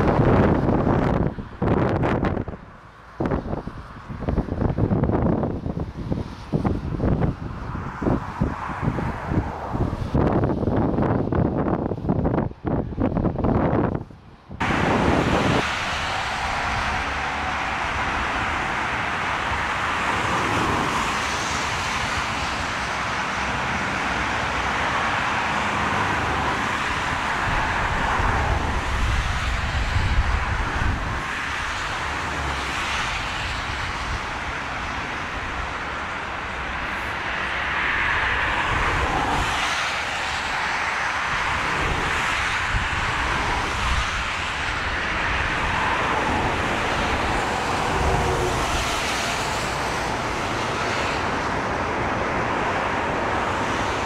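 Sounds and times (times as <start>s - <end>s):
jet engines roaring: 14.6s - 54.0s.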